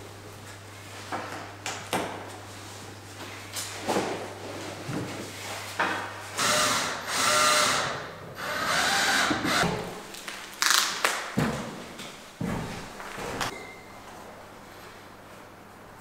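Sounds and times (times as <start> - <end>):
plastic film peeling: 10.0 - 11.3
plastic crinkling: 10.0 - 11.4.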